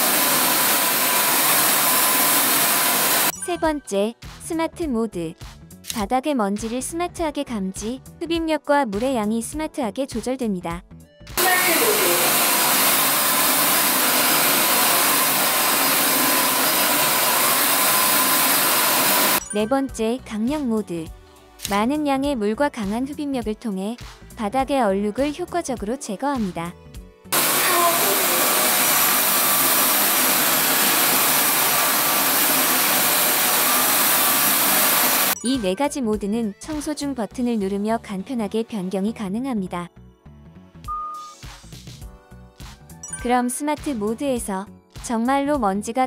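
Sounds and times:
floor vacuum running: 0.0s - 3.3s, 11.4s - 19.4s, 27.4s - 35.4s.

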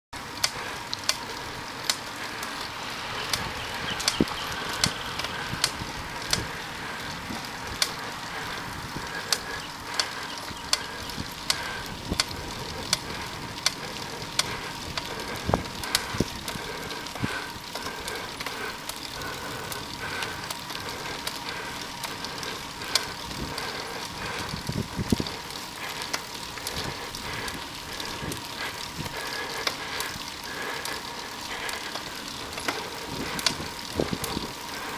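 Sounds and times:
bicycle clicks and rattles: 0.2s - 34.9s
road and wind noise: 0.2s - 34.9s.

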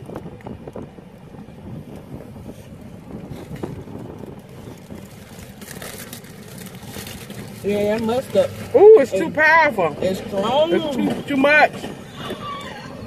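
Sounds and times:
car cabin rumble: 0.0s - 13.0s
paper wrapper crinkling: 4.6s - 8.6s.

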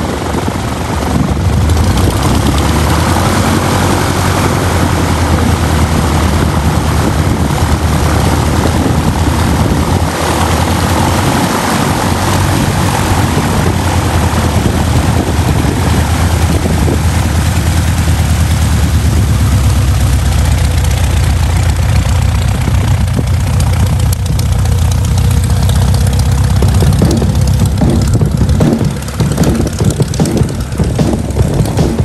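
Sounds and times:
light aircraft engine and propeller: 0.0s - 32.0s.

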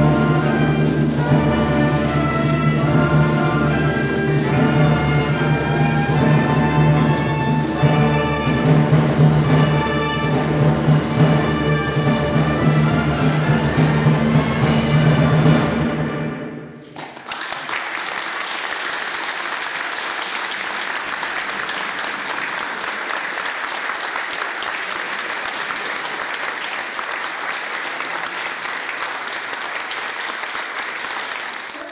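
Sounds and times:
audience applause: 16.9s - 31.9s.

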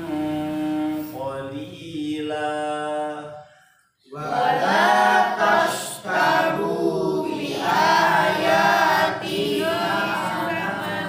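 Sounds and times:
group of voices chanting in unison: 4.0s - 11.0s.

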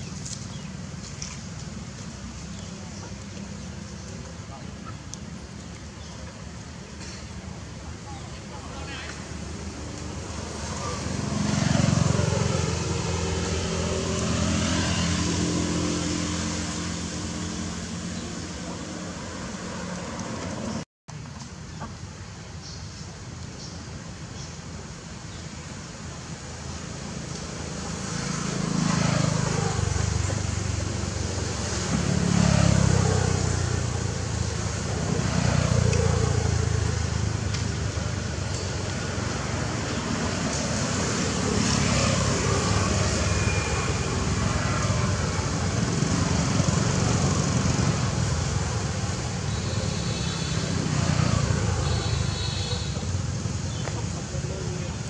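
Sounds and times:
vehicle engines passing: 0.0s - 55.0s.

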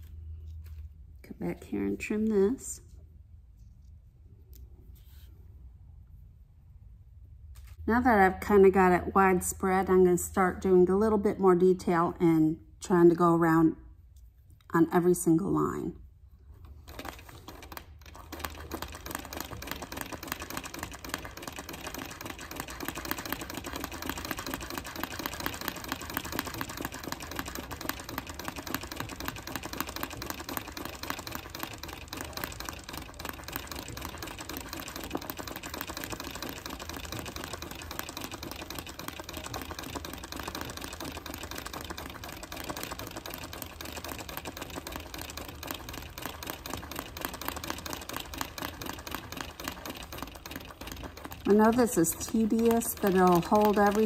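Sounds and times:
treadle sewing machine stitching: 16.8s - 54.0s.

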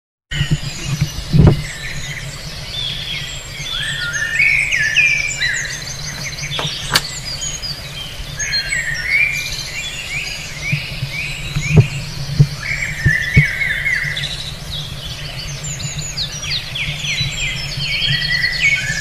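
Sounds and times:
small birds chirping and trilling: 0.3s - 19.0s
sharp click: 6.2s - 7.2s.

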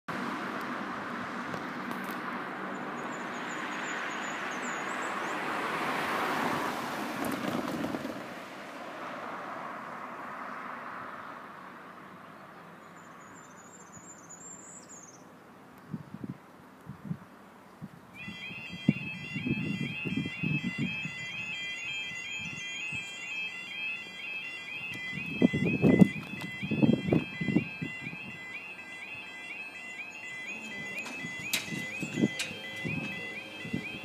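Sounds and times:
road vehicle passing: 0.1s - 14.8s, 18.2s - 34.0s.

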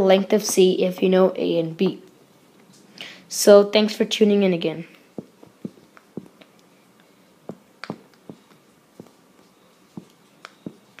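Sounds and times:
stylus tapping on touchscreen: 5.2s - 6.4s, 7.5s - 9.2s, 10.0s - 10.9s.

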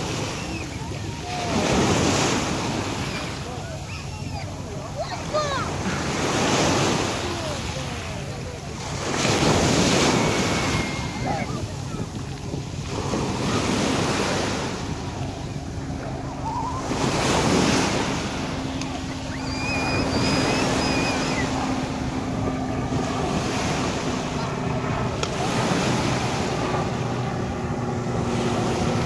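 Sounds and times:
waves breaking on pebble beach: 0.0s - 15.2s, 16.3s - 22.0s.

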